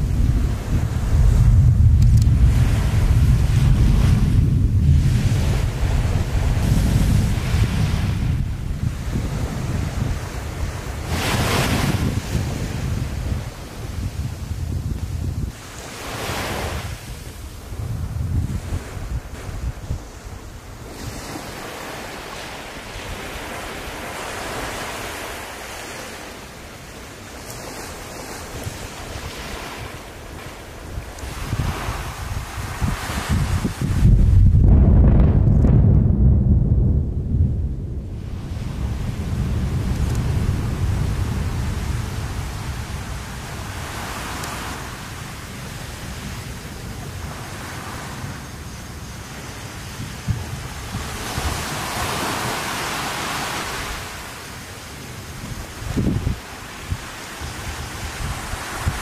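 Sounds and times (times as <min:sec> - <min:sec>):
sea waves washing on shore: 0:00.0 - 0:59.0
wind on microphone: 0:00.0 - 0:59.0
volcano explosion rumble: 0:33.3 - 0:43.7.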